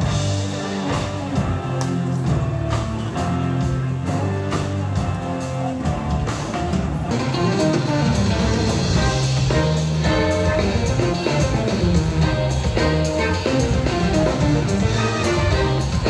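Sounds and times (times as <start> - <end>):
bass line: 0.0 - 16.0
steady drum beat: 0.0 - 16.0.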